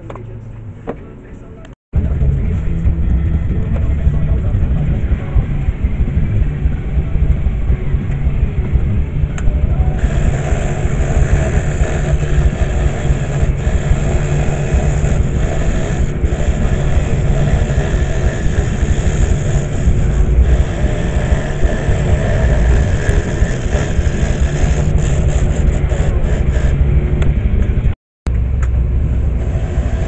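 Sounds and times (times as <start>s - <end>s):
scroll saw humming: 2.3s - 28.0s, 29.3s - 30.0s
saw blade cutting wood: 10.0s - 27.0s, 29.4s - 30.0s.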